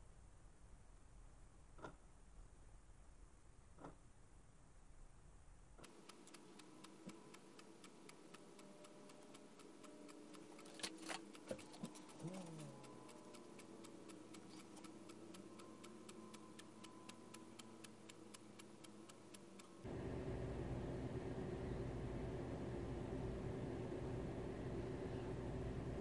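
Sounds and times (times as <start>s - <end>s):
wall clock ticking fast: 5.8s - 19.9s.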